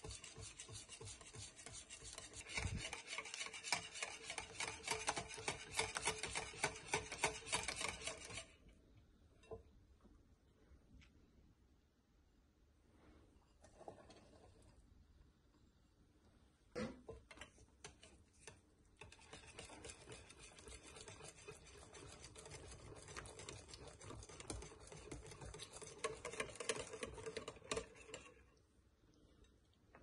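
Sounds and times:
whisk clicking against glass bowl: 0.0s - 8.5s, 17.4s - 28.4s.

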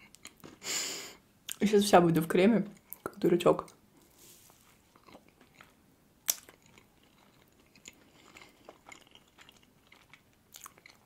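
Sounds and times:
person chewing: 0.0s - 0.6s, 4.0s - 11.0s.

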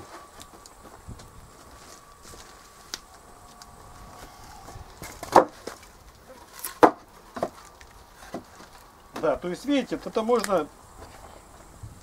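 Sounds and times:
wooden boards knocking: 5.0s - 5.8s, 6.7s - 7.6s.

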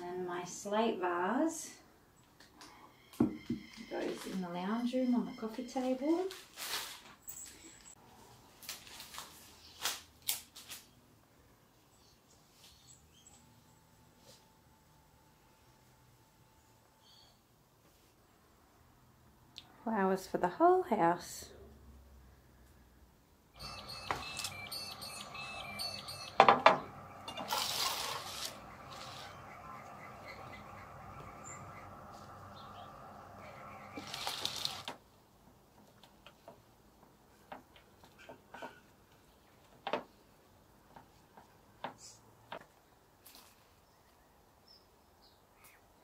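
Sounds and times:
rustling: 6.3s - 10.9s, 33.2s - 35.0s
birds chirping: 23.6s - 34.9s
flower stems rustling and clicking: 33.9s - 35.0s.

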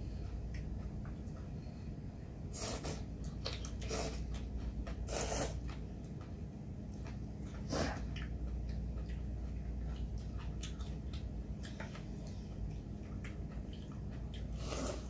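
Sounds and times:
steady low hum: 0.0s - 15.0s
chewing noodles: 2.8s - 15.0s
slurp: 5.1s - 5.6s.

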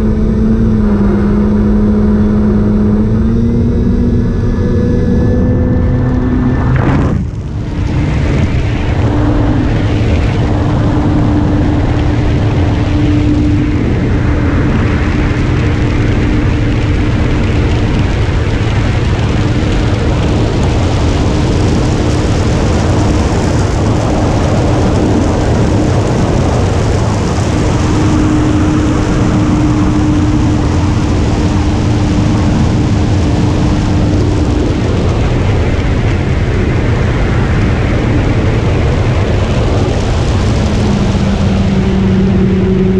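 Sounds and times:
motor and propeller hum: 0.0s - 42.9s
wind rush on microphone: 0.0s - 42.9s.

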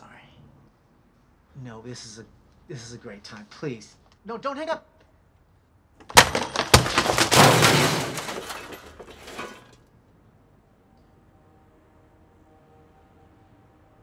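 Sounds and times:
something crashing and shattering: 6.0s - 9.8s.

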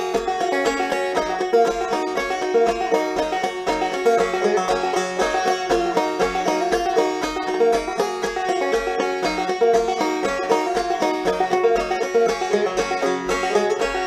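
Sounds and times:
picked string notes: 0.0s - 14.0s.

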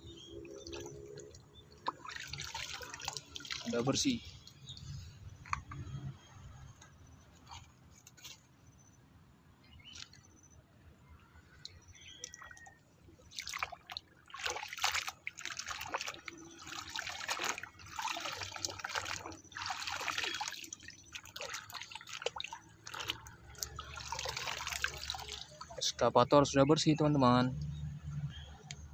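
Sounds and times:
water dripping: 0.1s - 5.6s, 11.5s - 26.0s
hands splashing in muddy water: 0.5s - 4.0s, 13.3s - 25.8s.

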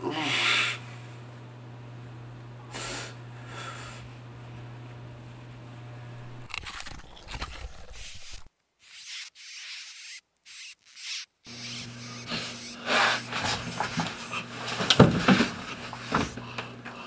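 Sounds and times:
low steady hum: 0.0s - 6.6s.

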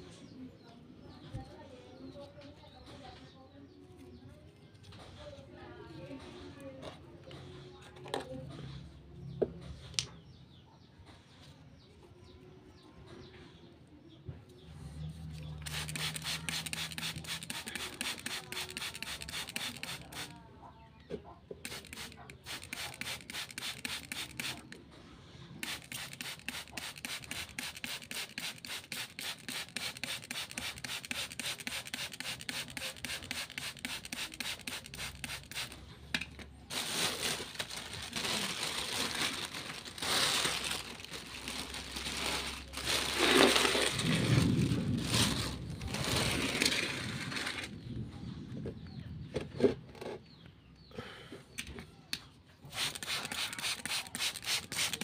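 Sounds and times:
spray bottle spritzing: 15.6s - 20.4s, 21.6s - 24.7s, 25.6s - 35.8s, 52.7s - 55.0s
plastic bag rustling: 36.6s - 47.8s.

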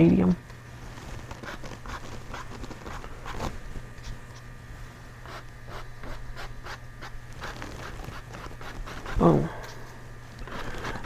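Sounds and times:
paintbrush scratching on canvas: 1.1s - 3.6s, 5.2s - 9.2s.

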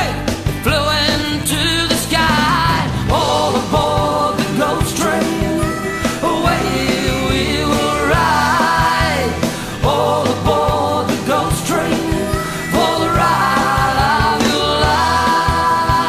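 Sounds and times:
live rock band playing: 0.0s - 16.0s
sliding lead guitar melody: 0.2s - 8.2s.

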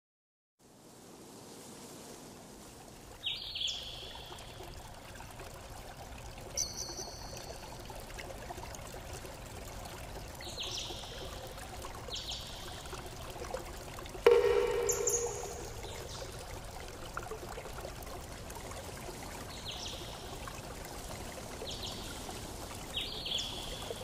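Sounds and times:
liquid pouring and trickling: 2.8s - 24.0s
short high chirps: 14.3s - 16.1s.

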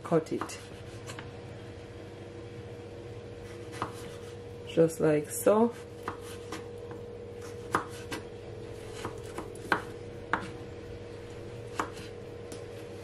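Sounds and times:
knife chopping on wooden board: 3.7s - 4.3s, 6.0s - 6.7s, 7.4s - 10.6s, 11.7s - 12.1s.

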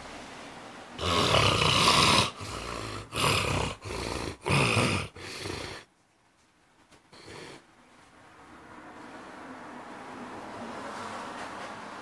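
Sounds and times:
man snoring loudly: 1.0s - 5.9s.

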